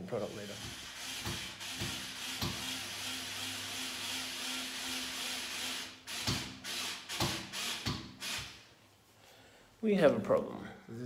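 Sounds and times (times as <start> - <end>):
hammer drill boring into brick: 0.5 - 8.5.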